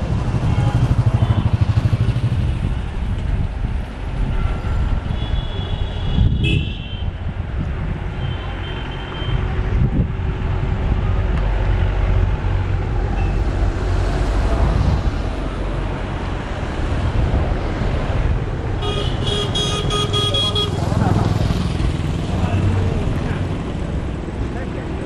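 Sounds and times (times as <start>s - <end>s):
road traffic rumbling: 0.0s - 25.0s
vehicle horn: 4.4s - 7.2s, 18.8s - 20.8s.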